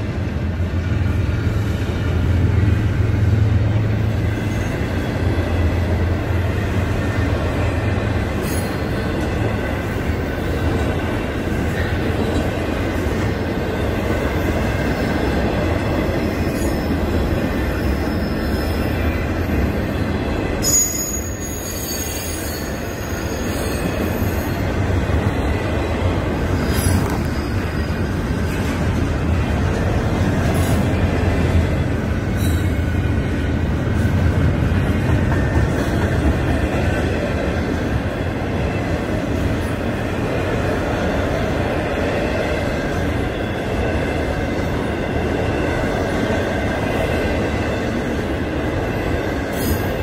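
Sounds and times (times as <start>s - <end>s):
train wheels rumbling on rail: 0.0s - 50.0s
high wheel squeal: 17.7s - 24.7s.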